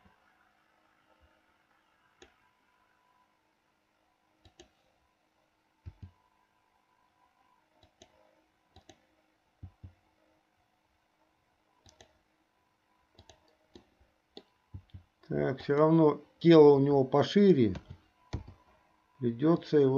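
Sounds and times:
faint computer mouse clicks: 0:04.4 - 0:04.8, 0:07.8 - 0:09.0, 0:11.8 - 0:12.2, 0:13.2 - 0:15.1.

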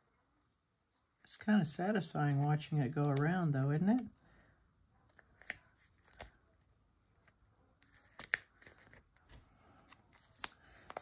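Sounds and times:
soft ticks and crinkles of handling: 0:05.0 - 0:11.0.

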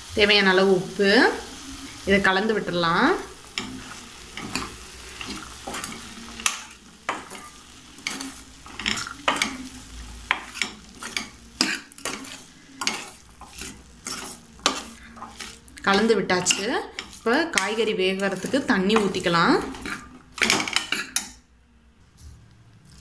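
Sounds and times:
frying sizzle: 0:00.0 - 0:21.4
ladle scraping and knocking pan: 0:03.4 - 0:21.4.

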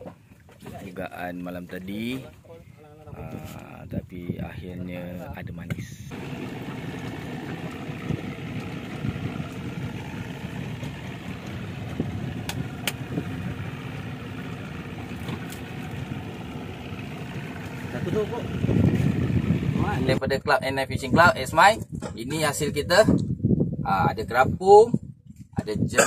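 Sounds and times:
boat engine idling: 0:06.1 - 0:20.2
sharp clicks: 0:12.4 - 0:13.1.

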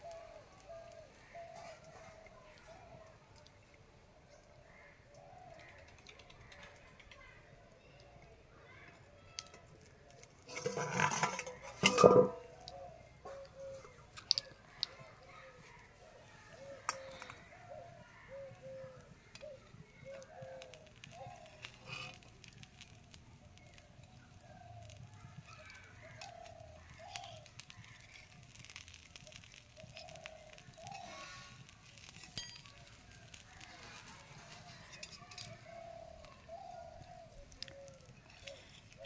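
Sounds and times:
faint bird calls: 0:00.0 - 0:09.3, 0:12.4 - 0:32.0, 0:32.6 - 0:39.0
metal spatula clicking on griddle: 0:26.2 - 0:35.6.

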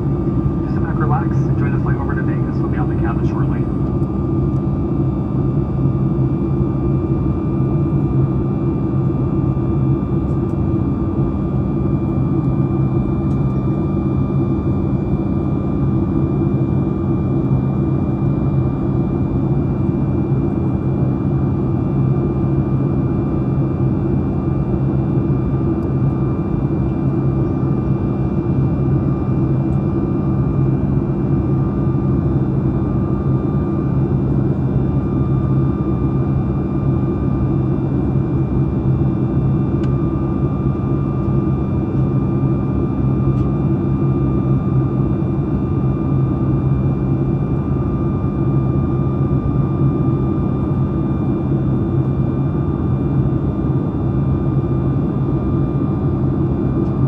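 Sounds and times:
airliner cabin hum: 0:00.0 - 0:05.5.

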